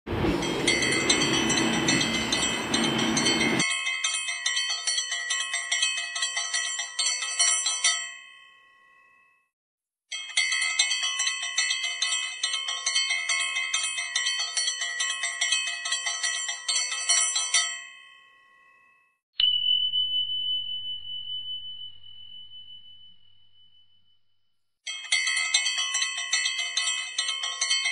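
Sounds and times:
bell rung rapidly: 0.1s - 6.8s
single bell strike ringing: 0.2s - 3.6s.

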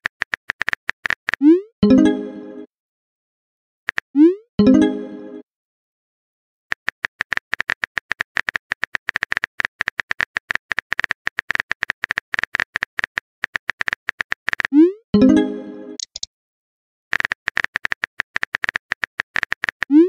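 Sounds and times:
keyboard typing sound effect: 0.1s - 2.2s, 6.8s - 16.3s, 17.1s - 20.0s.

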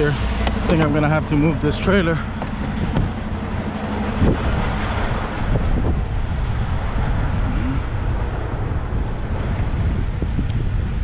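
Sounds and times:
diesel truck engine droning: 0.0s - 11.0s.

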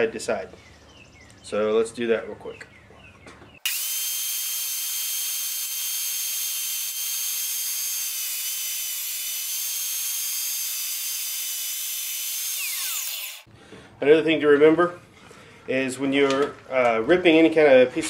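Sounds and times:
table saw whining: 3.6s - 13.5s.

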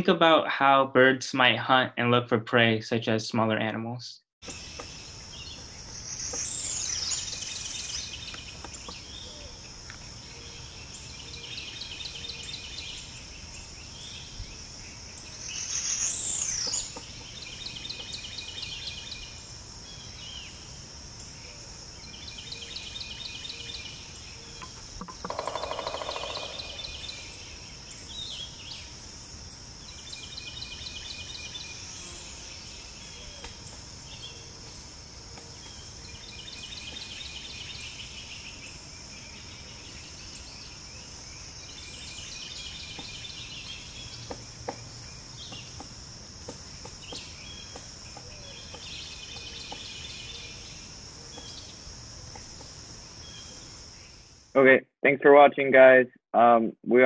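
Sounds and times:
bird trills: 24.4s - 27.5s
high-pitched insect drone: 24.6s - 28.0s.

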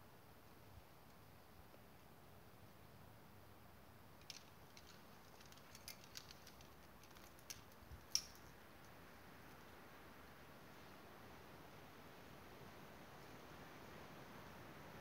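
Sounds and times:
metallic clicks of climbing gear: 4.1s - 9.0s.

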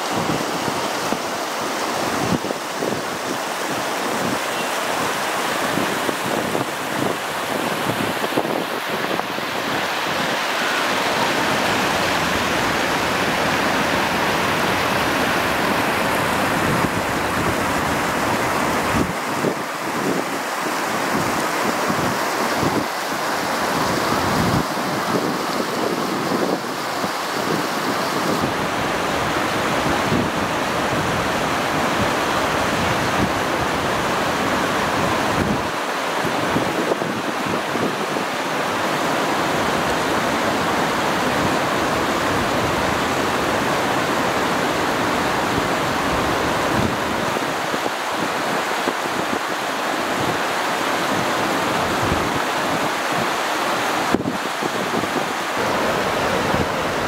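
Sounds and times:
water rushing over weirs: 0.0s - 57.0s.

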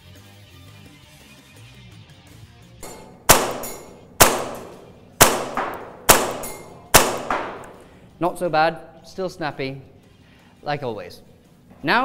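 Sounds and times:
airsoft pistol shots: 2.8s - 7.8s.

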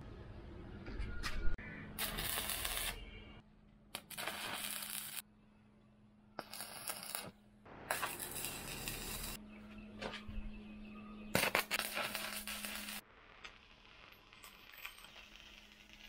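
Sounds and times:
arc welder crackling: 2.0s - 3.1s, 3.9s - 5.2s, 6.4s - 9.4s, 11.4s - 16.0s.

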